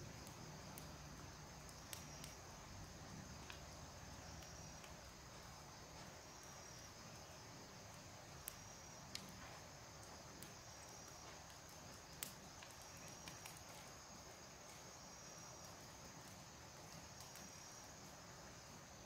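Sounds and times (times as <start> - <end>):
high insect trill: 0.0 - 19.0
faint sharp clicks: 1.6 - 2.4, 3.4 - 3.7, 8.4 - 9.3, 10.0 - 13.9.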